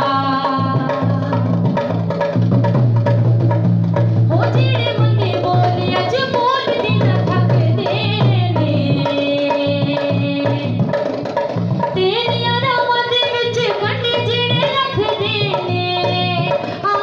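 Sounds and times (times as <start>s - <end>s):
woman singing into a microphone: 0.0s - 1.7s, 4.3s - 11.0s, 12.0s - 17.0s
amplified backing music with drums: 0.0s - 17.0s.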